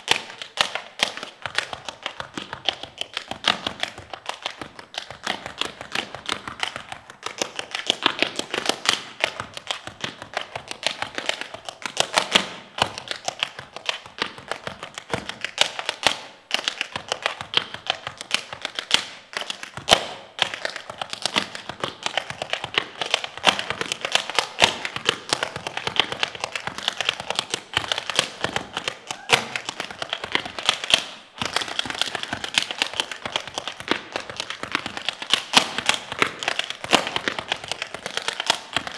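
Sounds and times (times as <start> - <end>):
tap shoes striking floor: 0.0 - 38.9.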